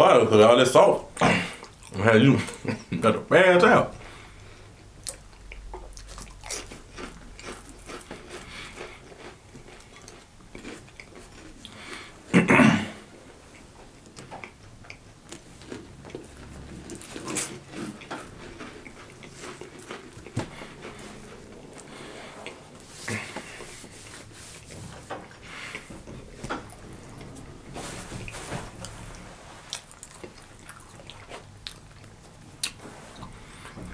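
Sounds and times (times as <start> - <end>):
crackers being bitten and chewed: 4.8 - 12.2, 13.4 - 26.0, 29.6 - 33.6.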